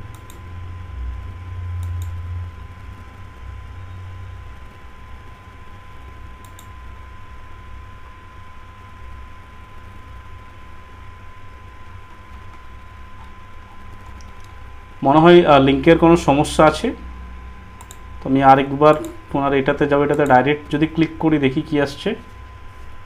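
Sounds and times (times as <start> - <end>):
faint high whine: 0.0 - 23.0
steady low hum: 0.0 - 23.0
computer mouse clicks: 0.1 - 0.4, 1.8 - 2.2, 6.4 - 6.7, 12.3 - 14.6, 17.8 - 18.0, 18.9 - 19.2.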